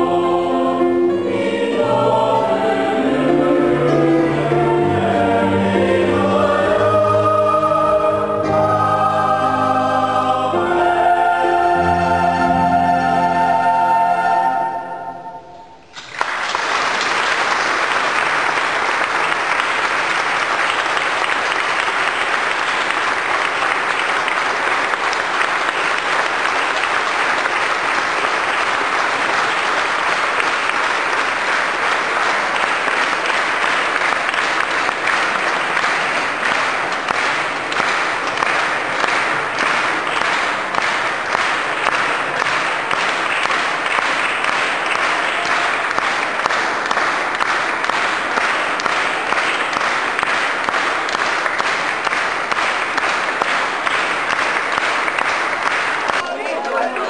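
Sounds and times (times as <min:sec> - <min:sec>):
audience applauding: 0:15.9 - 0:57.0.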